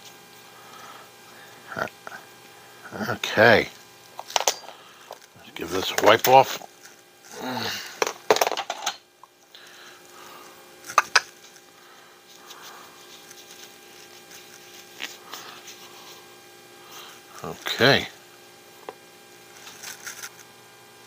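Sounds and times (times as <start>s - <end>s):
cloth wiping parts: 12.2s - 16.3s.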